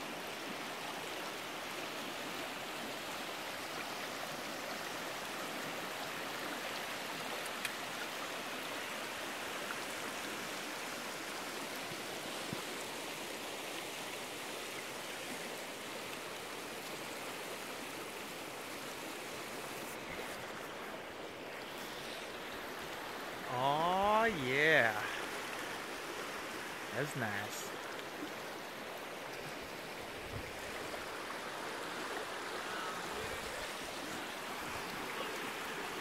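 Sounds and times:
river rushing over gravel: 21.8s - 36.0s.

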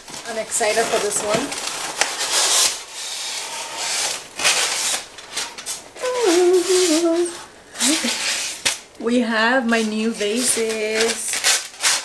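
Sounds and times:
cardboard and foam rustling: 0.0s - 8.8s, 9.6s - 12.0s
woman's voice holding a note: 6.0s - 7.4s.

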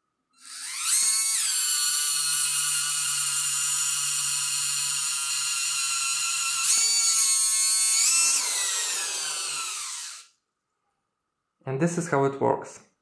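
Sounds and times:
electric water pump whining: 0.4s - 10.3s.

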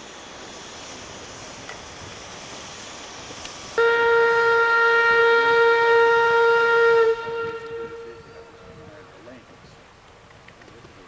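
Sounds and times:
steam whistle blast: 3.8s - 8.9s.

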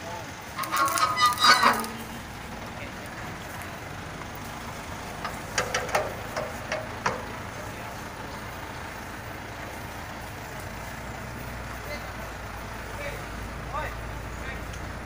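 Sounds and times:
steady outdoor rumble: 0.0s - 15.0s
metallic clanks of hand crank: 0.6s - 2.1s.

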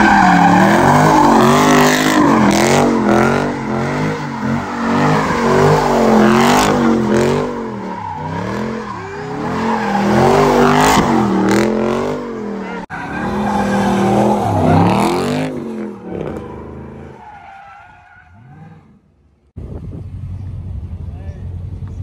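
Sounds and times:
car engine revving: 0.0s - 17.5s
tyres screeching on pavement: 0.0s - 19.1s.

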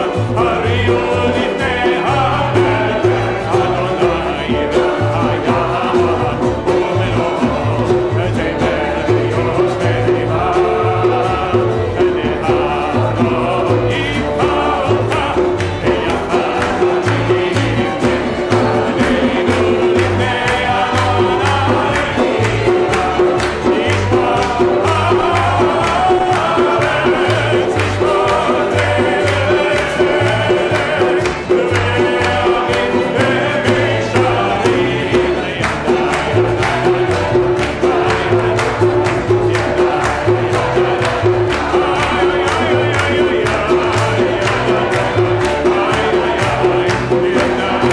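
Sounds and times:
acoustic guitar: 0.0s - 47.9s
group singing: 0.0s - 47.9s
hand clapping: 0.0s - 47.9s
hand drum beating: 0.0s - 47.9s.

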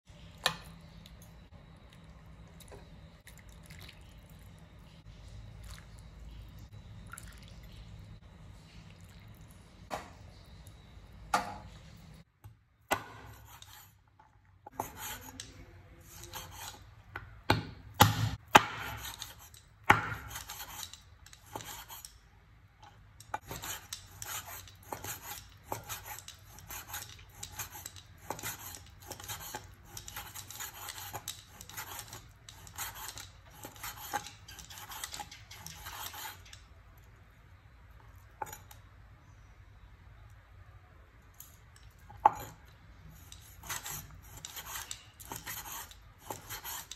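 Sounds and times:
cleaver chopping meat on wood: 17.5s - 19.1s, 19.8s - 20.3s.

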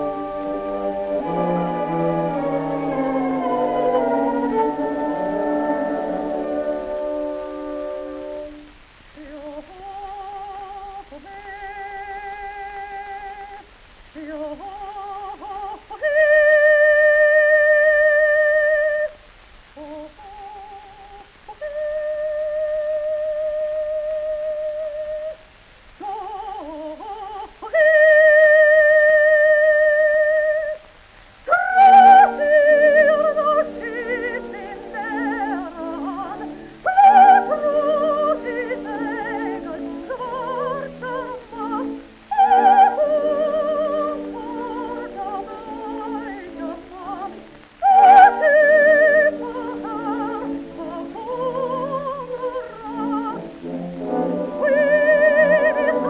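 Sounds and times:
orchestra playing: 0.0s - 8.7s, 49.2s - 56.0s
soprano singing opera: 0.0s - 56.0s.

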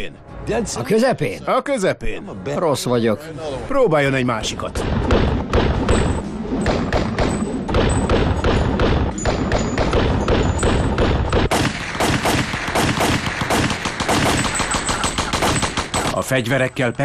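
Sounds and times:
submachine gun automatic fire: 11.5s - 16.2s.

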